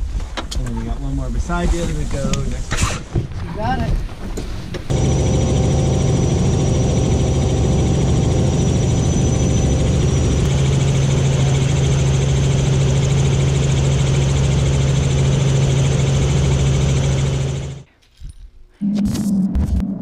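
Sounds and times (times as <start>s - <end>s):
helicopter drone: 4.9s - 17.9s.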